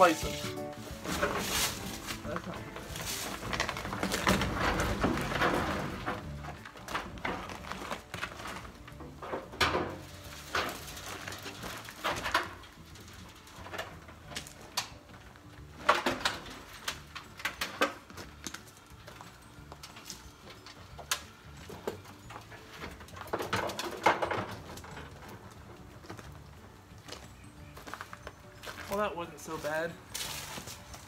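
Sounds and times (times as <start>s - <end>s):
wood scraping on gravel: 0.0s - 15.0s, 27.8s - 31.0s.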